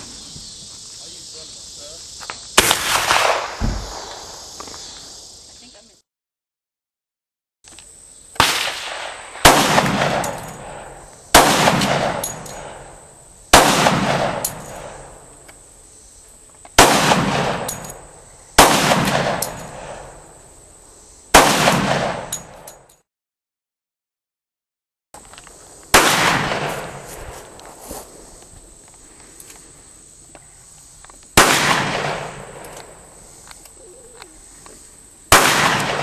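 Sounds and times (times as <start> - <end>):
gunshots with echo: 8.4 - 12.8, 35.3 - 36.0.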